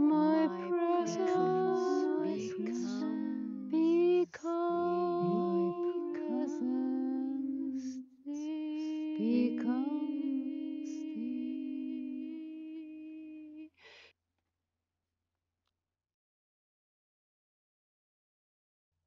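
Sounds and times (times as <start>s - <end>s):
woman singing long notes: 0.0s - 13.8s
breaths: 13.7s - 14.1s.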